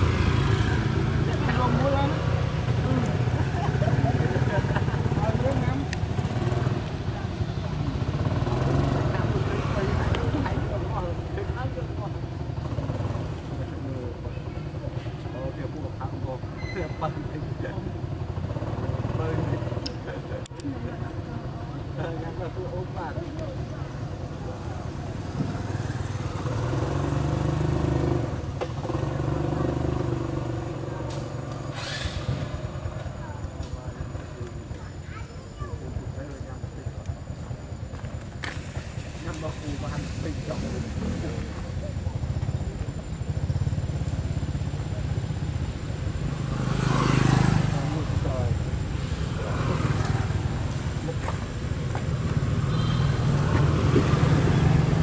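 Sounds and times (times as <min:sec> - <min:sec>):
short hiss: 0:31.7 - 0:32.5.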